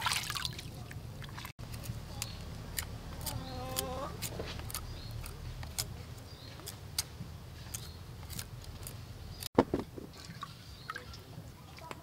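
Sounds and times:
peeler scraping pumpkin skin: 0:01.7 - 0:09.5
loud thump: 0:09.6 - 0:10.1.

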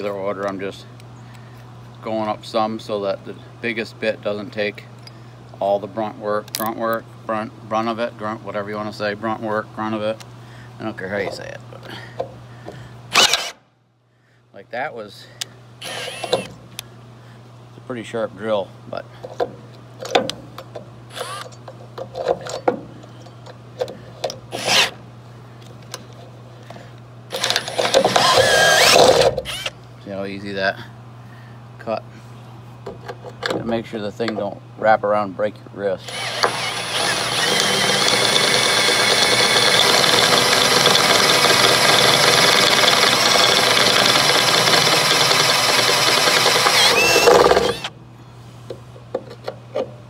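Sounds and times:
cordless drill boring through metal: 0:13.1 - 0:13.6, 0:15.8 - 0:16.5, 0:21.1 - 0:21.5, 0:24.5 - 0:24.9, 0:27.3 - 0:29.7, 0:36.0 - 0:47.9.

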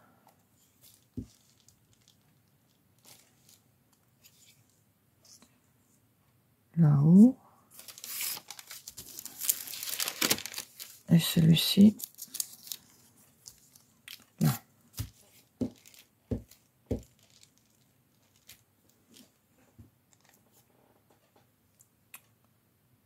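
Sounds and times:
paper rustling: 0:00.6 - 0:03.6, 0:07.7 - 0:19.4.

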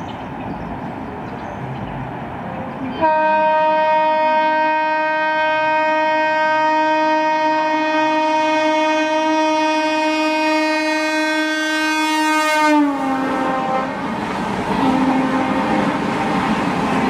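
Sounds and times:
locomotive horn blast: 0:02.9 - 0:17.0
train coaches rushing rattle: 0:12.9 - 0:17.0.

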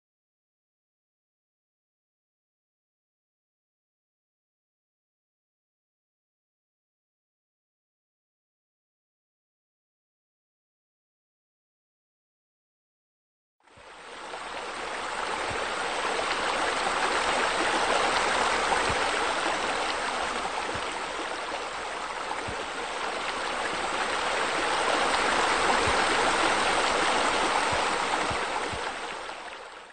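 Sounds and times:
running splashing water: 0:14.2 - 0:29.9.

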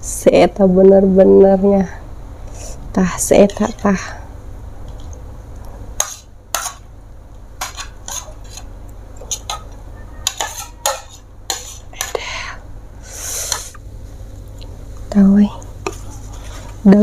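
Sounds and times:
cutlery clinking on plates: 0:07.6 - 0:12.2
rustling hiss: 0:12.9 - 0:14.4.

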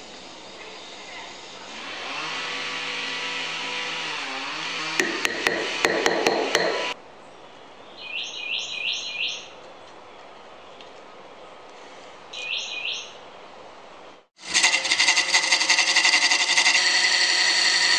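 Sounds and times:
rubber mallet tapping wood: 0:05.0 - 0:07.0
bird chirping: 0:06.0 - 0:10.9, 0:12.3 - 0:13.2.

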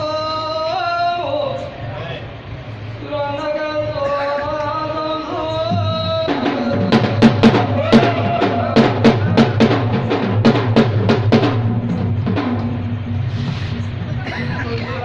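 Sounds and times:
loud fast drum strokes: 0:05.7 - 0:15.0.

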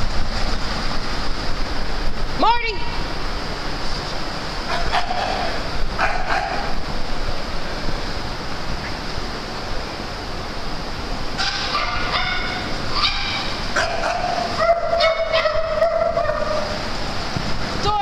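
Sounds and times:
dog yips and whines: 0:11.5 - 0:13.5.

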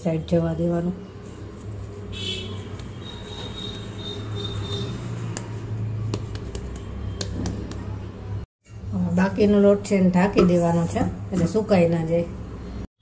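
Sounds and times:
hands kneading dough in a bowl: 0:00.3 - 0:08.2.

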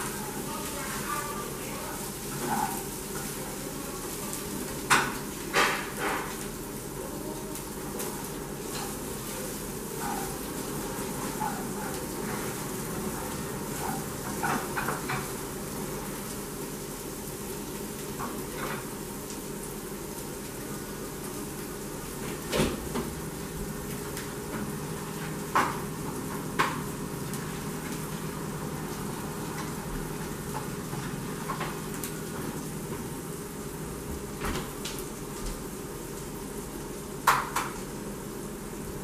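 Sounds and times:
food sizzling in a pan: 0:00.0 - 0:39.0
kitchen knocks and clatters: 0:04.8 - 0:06.4, 0:13.8 - 0:15.4, 0:37.2 - 0:37.8.

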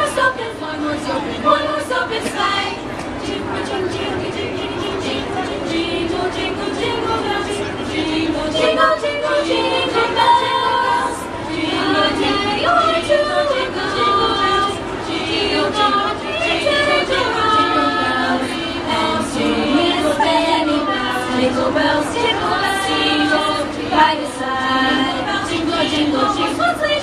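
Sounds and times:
girls' choir singing: 0:00.0 - 0:27.0.

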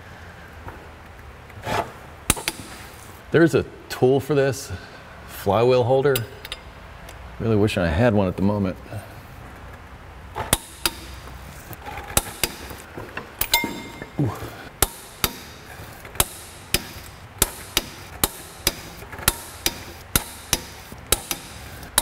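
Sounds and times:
hand tools clicking on metal: 0:10.5 - 0:22.0
short metallic ring: 0:13.4 - 0:14.2.

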